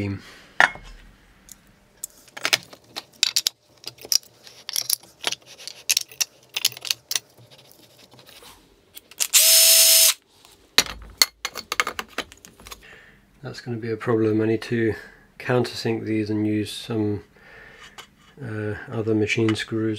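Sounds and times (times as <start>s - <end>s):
metal parts clinking: 2.4s - 7.8s
cordless drill driving screw: 9.2s - 10.2s.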